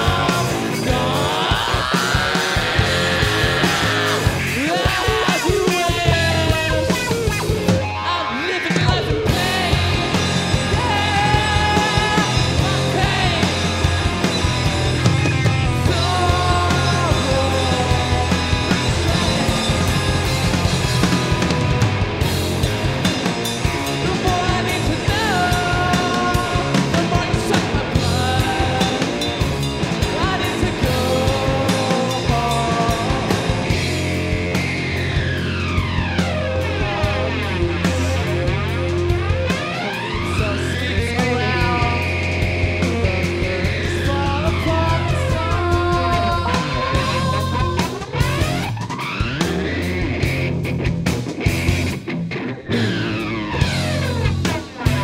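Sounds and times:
person singing: 0.0 - 7.2, 7.8 - 14.1, 15.8 - 21.1, 23.8 - 34.6, 39.5 - 48.6
drum kit with cymbals: 0.0 - 55.0
electric bass: 0.0 - 55.0
electric guitar: 0.0 - 55.0.

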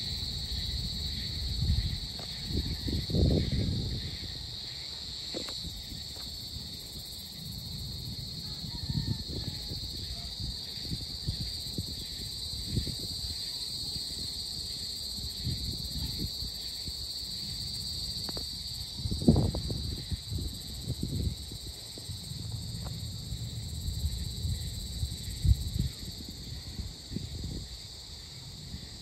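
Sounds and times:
insect chorus drone: 0.0 - 29.0
low rumbles: 20.4 - 25.9.

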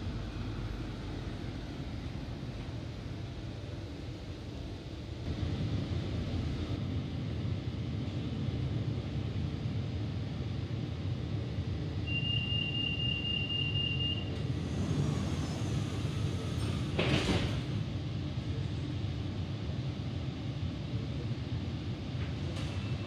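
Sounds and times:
train car low hum: 0.0 - 23.0
rapid high-pitched door warning beeping: 12.1 - 14.3.

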